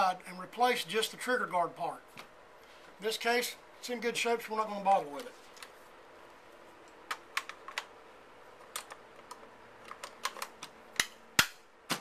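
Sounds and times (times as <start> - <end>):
rifle parts clicking: 8.6 - 12.0
sharp metal snaps: 8.7 - 12.0.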